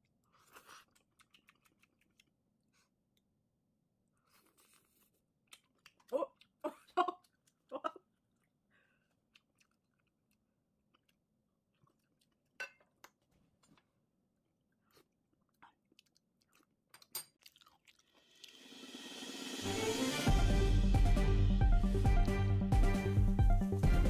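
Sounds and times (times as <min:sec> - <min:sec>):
soft chewing: 0:00.0 - 0:18.6
music: 0:18.5 - 0:24.0.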